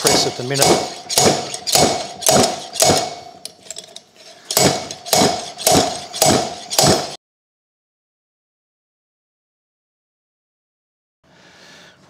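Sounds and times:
slide hammer clanging on metal: 0:00.0 - 0:07.2.

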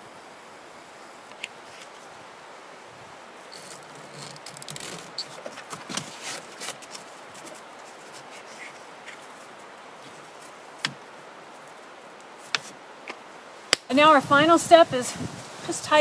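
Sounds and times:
steady background hiss: 0:00.0 - 0:16.0
soft rustling of cord: 0:03.5 - 0:12.8.

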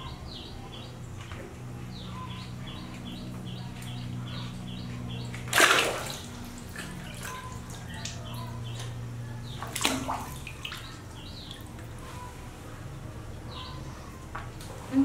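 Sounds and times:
water splashing in basin: 0:05.3 - 0:08.2, 0:09.6 - 0:11.8.

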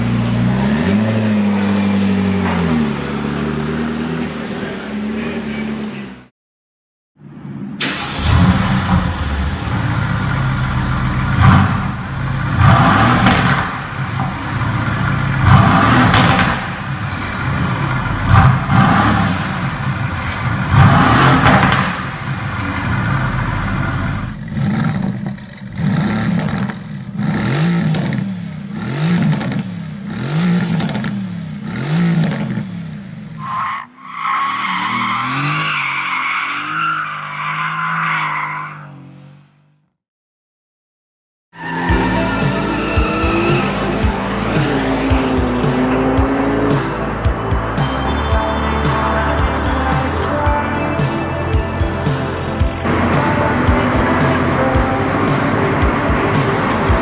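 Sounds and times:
car driving on a track: 0:00.0 - 0:06.3, 0:07.2 - 0:39.9, 0:41.6 - 0:57.0
car engine revving: 0:00.0 - 0:06.3, 0:07.5 - 0:39.4, 0:41.6 - 0:57.0
exhaust cracks: 0:07.8 - 0:36.2.

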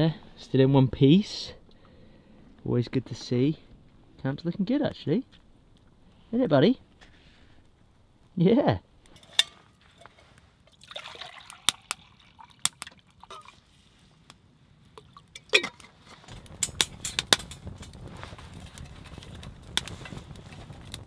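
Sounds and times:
wood fire crackling: 0:00.0 - 0:21.0
water pouring into metal mug: 0:10.7 - 0:13.6.

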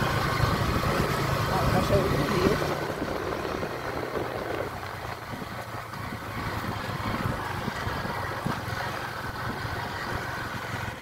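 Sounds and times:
motorcycle engine running: 0:00.0 - 0:11.0
wind on microphone: 0:01.9 - 0:10.2.

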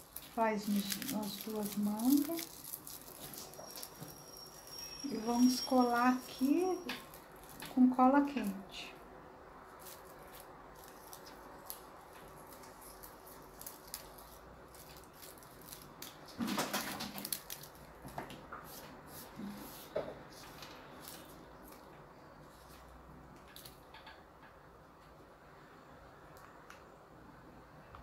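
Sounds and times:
husk and fabric rustling: 0:00.0 - 0:08.7
scissors snipping corn husk: 0:00.2 - 0:03.6.

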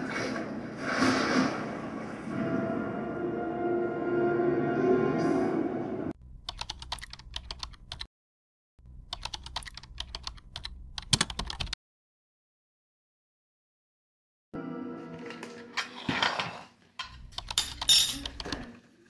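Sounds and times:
cartoon soundtrack on television: 0:00.2 - 0:06.2
keyboard typing clicks: 0:06.4 - 0:08.1, 0:09.1 - 0:11.8.

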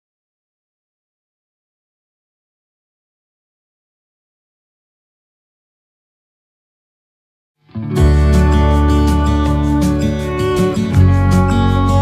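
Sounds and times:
acoustic guitar song: 0:07.7 - 0:12.0.

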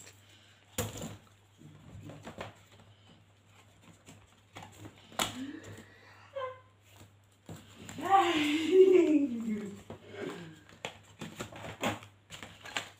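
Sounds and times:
cardboard rustling and scraping: 0:09.6 - 0:12.9.

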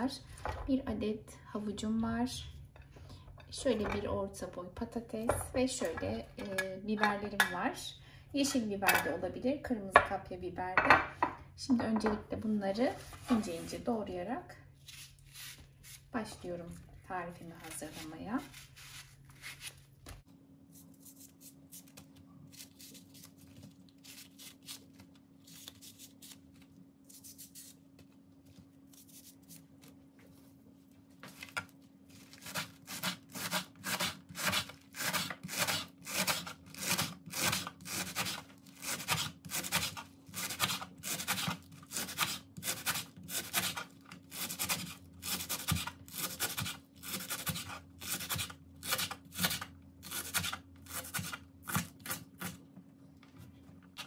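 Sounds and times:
knife scraping leek stalks: 0:17.6 - 0:19.8, 0:32.2 - 0:52.6.

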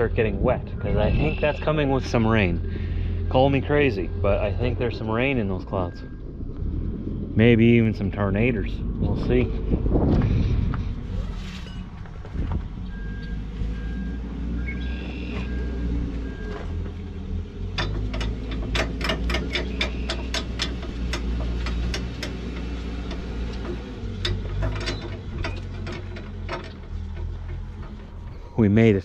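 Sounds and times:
diesel engine idling: 0:00.0 - 0:29.0
back-up alarm beeping: 0:00.9 - 0:02.2, 0:03.6 - 0:06.5, 0:12.8 - 0:16.8.

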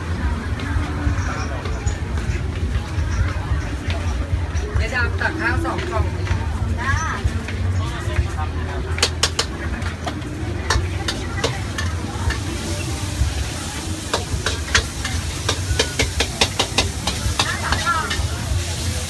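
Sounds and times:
food frying hiss: 0:09.0 - 0:19.0
metal spatula scraping a wok: 0:10.7 - 0:18.9.

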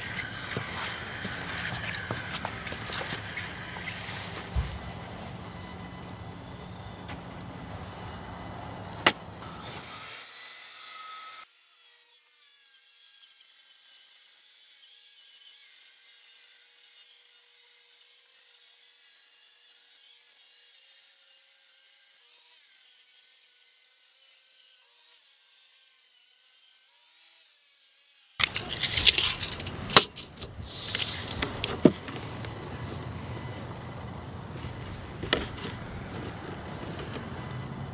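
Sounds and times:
circular saw cutting plywood: 0:00.0 - 0:37.9
handling clicks and knocks: 0:28.4 - 0:32.7, 0:34.6 - 0:37.4.

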